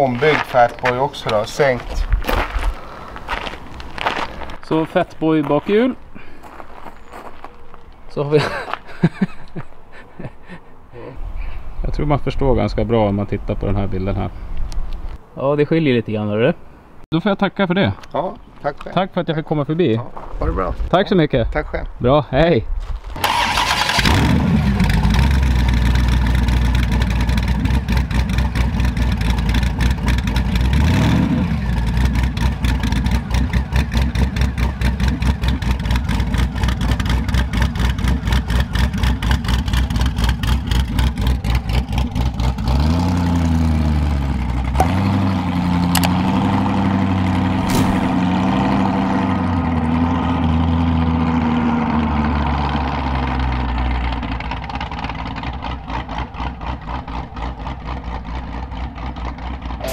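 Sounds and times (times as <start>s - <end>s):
motorcycle engine idling and revving: 23.2s - 59.9s.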